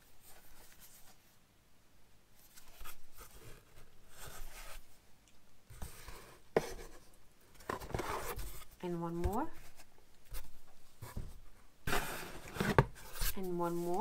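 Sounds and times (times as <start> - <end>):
packaging rustling and scraping: 5.7 - 14.0.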